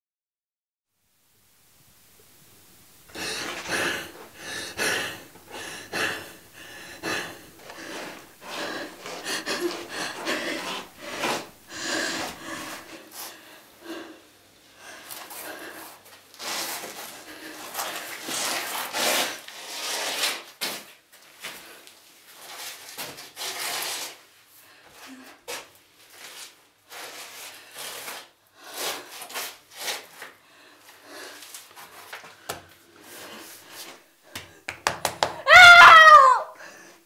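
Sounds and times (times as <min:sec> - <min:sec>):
body rubbing against tiles: 0:03.1 - 0:13.4, 0:14.8 - 0:34.7
woman breathing hard in gasps: 0:03.1 - 0:14.2, 0:36.5 - 0:37.0.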